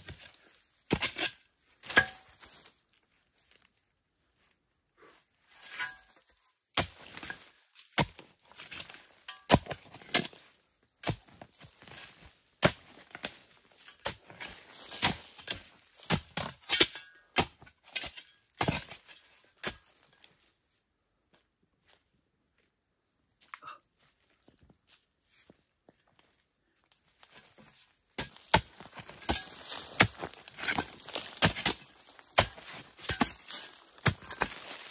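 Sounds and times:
pole striking earth: 27.5s - 34.9s.

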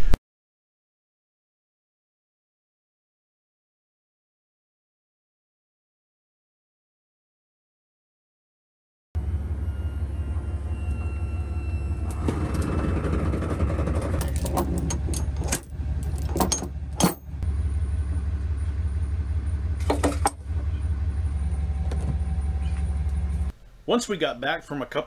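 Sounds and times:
engine idling: 9.2s - 23.5s
metal chain clinking: 14.2s - 17.4s.

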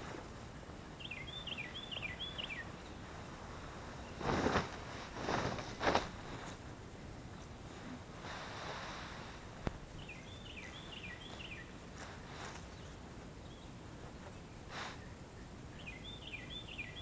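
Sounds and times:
outdoor background noise: 0.0s - 17.0s
small bird chirping: 1.0s - 3.1s, 9.9s - 17.0s.

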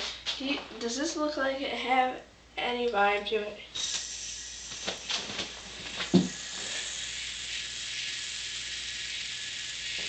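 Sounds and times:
yo-yo bearing whirring: 3.8s - 10.0s.

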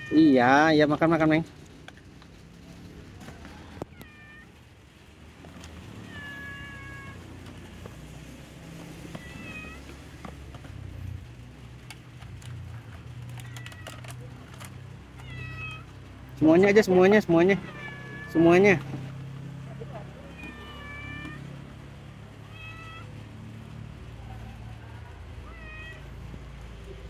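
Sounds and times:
cat meowing: 0.0s - 0.5s, 3.8s - 4.6s, 5.8s - 7.5s, 8.8s - 10.0s, 13.3s - 16.1s, 17.5s - 18.6s, 20.0s - 21.7s, 22.4s - 23.3s, 25.4s - 26.6s.

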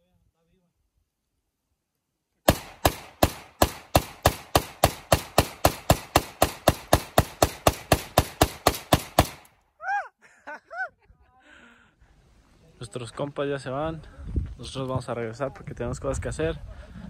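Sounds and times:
rifle rapid single shots: 2.5s - 9.5s.

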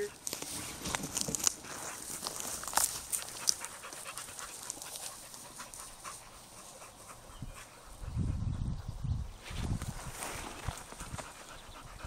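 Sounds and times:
dogs panting: 1.6s - 9.0s, 10.7s - 12.0s.

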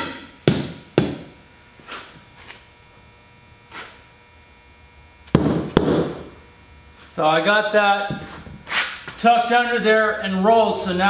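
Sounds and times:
mallet knocking on wheel: 0.0s - 1.2s.

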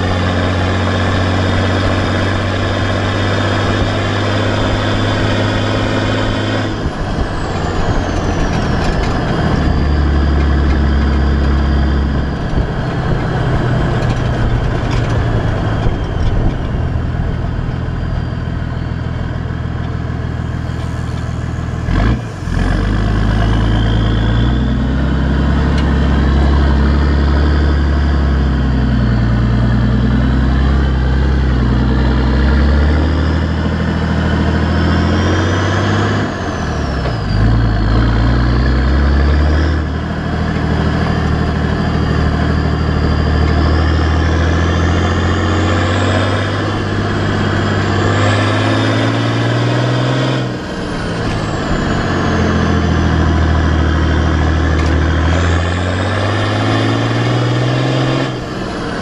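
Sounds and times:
diesel engine exhaust under load: 0.0s - 59.0s.

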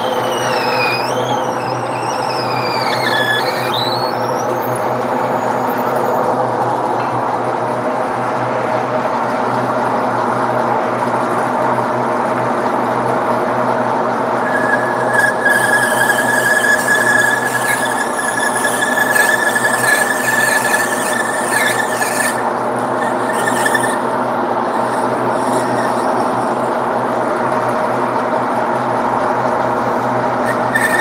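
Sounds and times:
cutting tool squealing: 0.0s - 6.2s, 14.4s - 26.7s, 30.4s - 31.0s
metal lathe motor humming: 0.0s - 6.9s, 13.3s - 31.0s.

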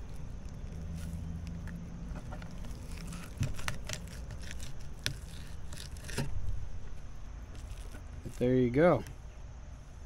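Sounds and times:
knife clicking and scraping fish: 0.0s - 6.3s
low steady hum: 0.0s - 10.0s.

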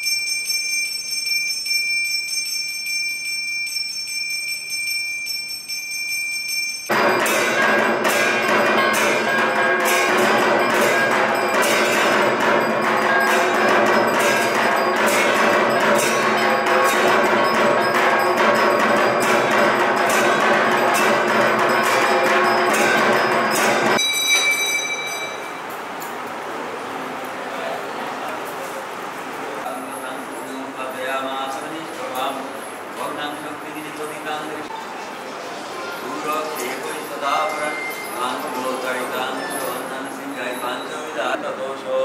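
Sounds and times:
temple bell ringing: 0.0s - 26.2s, 35.8s - 41.4s
clangour of bells and metal percussion: 0.0s - 26.3s, 29.6s - 41.4s.

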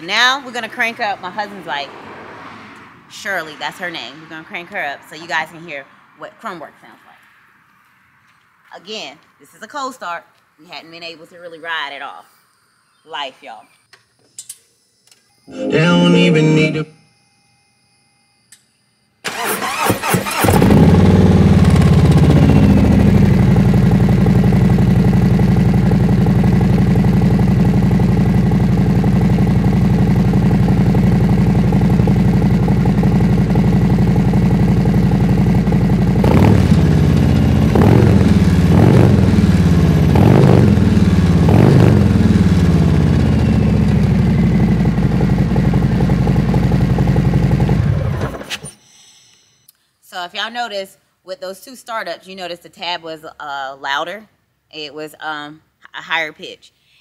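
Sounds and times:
motorcycle starter cranking: 19.2s - 23.9s
motorcycle engine idling and revving: 19.4s - 48.5s.

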